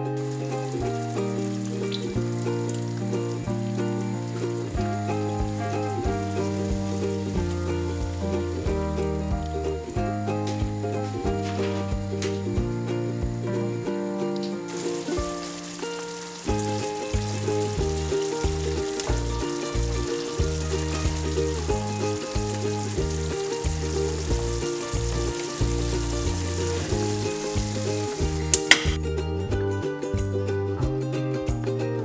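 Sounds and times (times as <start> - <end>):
meat and onions sizzling in pan: 0.0 - 9.2, 14.7 - 29.0
background music: 0.0 - 32.0
pan knock: 28.5 - 29.0.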